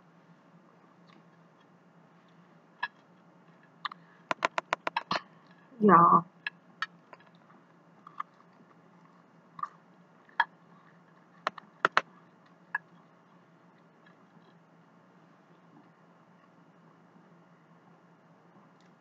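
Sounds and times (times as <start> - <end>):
chewing: 7.2 - 13.1.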